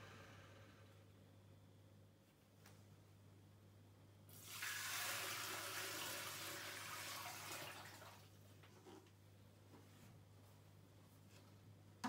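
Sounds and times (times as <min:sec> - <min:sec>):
water pouring and splashing: 0:04.4 - 0:08.3.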